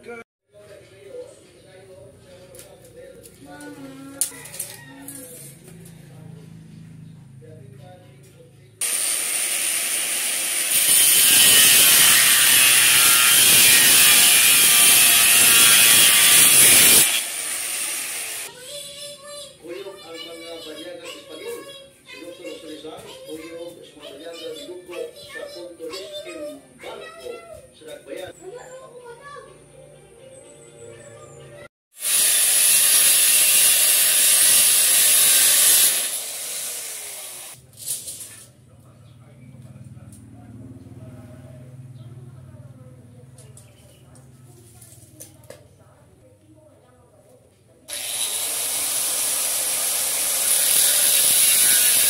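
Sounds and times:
angle grinder cutting steel: 8.8s - 18.5s, 32.0s - 37.6s, 47.9s - 52.0s.

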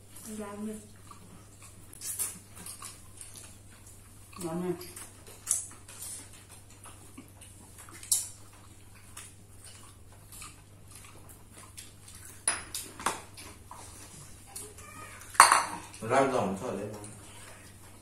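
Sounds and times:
plates and cutlery clinking: 15.2s - 16.0s.

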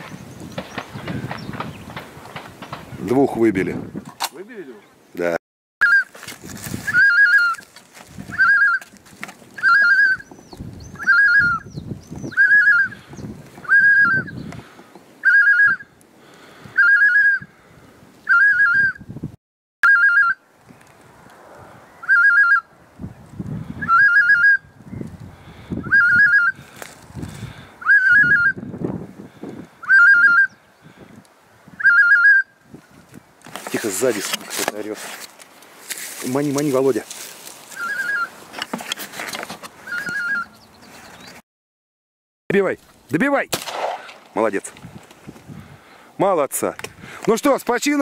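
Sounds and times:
goose honking: 37.8s - 38.4s.

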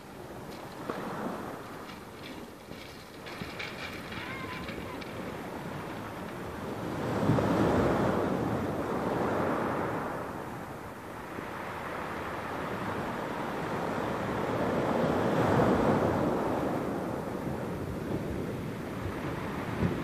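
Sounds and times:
waves lapping on pebbles: 0.0s - 10.3s.

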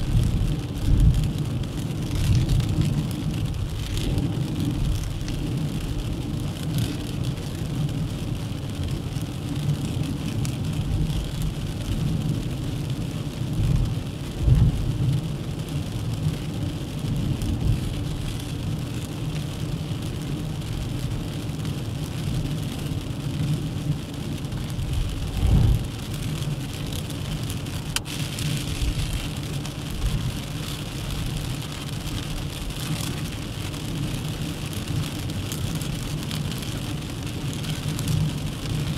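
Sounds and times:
road and tyre noise: 0.0s - 38.9s
engine rumble: 24.4s - 35.0s
low thumps: 25.3s - 25.9s.

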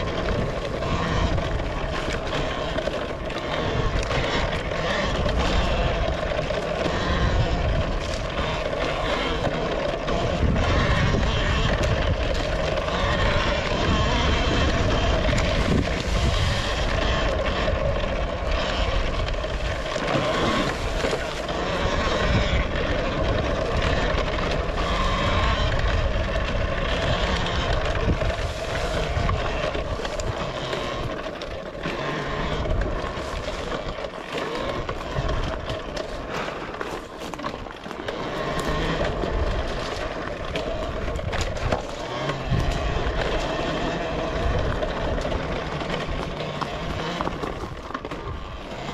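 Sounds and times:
electric motor whine: 0.0s - 48.9s
wind and tyre noise: 0.0s - 48.9s.

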